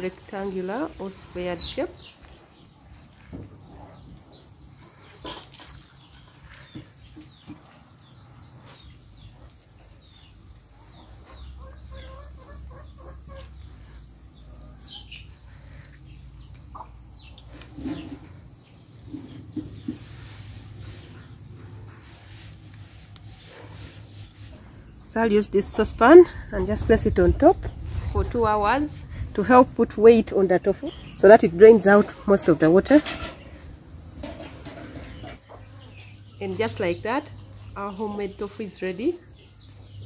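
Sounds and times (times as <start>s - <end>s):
chicken clucking: 6.8s - 15.4s, 16.4s - 18.4s, 33.0s - 38.0s.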